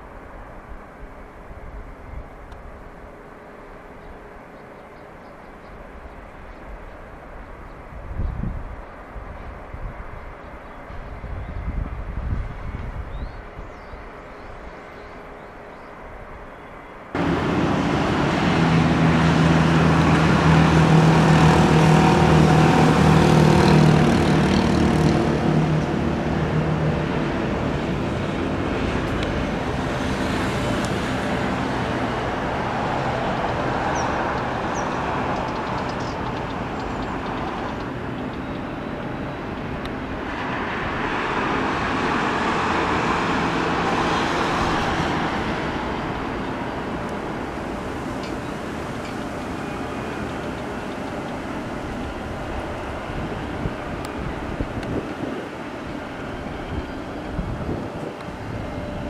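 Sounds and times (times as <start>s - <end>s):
road traffic noise: 0.0s - 59.0s
vehicle engine hum: 17.2s - 59.0s.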